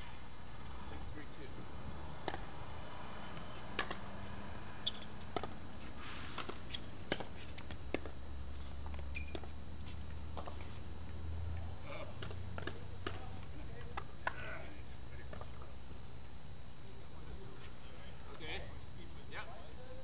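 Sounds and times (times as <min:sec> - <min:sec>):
ball bouncing on hard court: 0:02.2 - 0:02.5, 0:03.4 - 0:04.1, 0:04.8 - 0:05.6, 0:06.4 - 0:08.2, 0:08.8 - 0:09.6.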